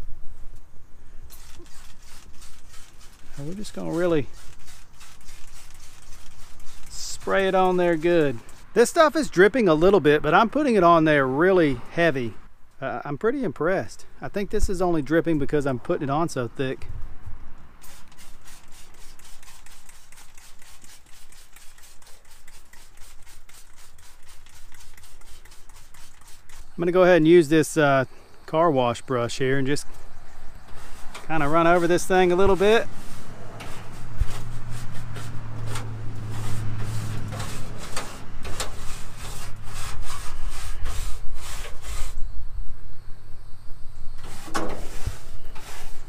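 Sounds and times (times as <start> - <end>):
spray bottle hissing sprays: 1.3 - 8.8, 17.8 - 26.8
stiff brush scrubbing metal: 1.3 - 10.0, 17.8 - 27.9, 29.3 - 42.2, 44.2 - 46.0.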